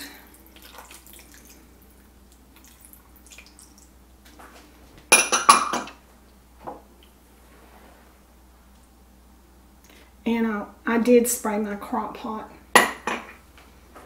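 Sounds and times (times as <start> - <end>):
sauce trickling: 0.0 - 4.2.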